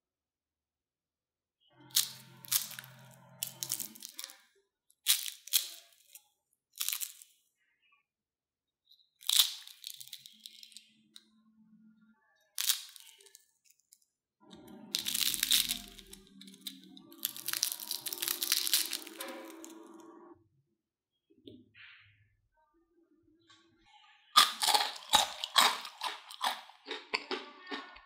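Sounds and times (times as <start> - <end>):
crisp snacks snapped and crunched: 1.9 - 4.4, 5.0 - 7.4, 9.2 - 11.0, 12.6 - 19.8, 24.4 - 27.8.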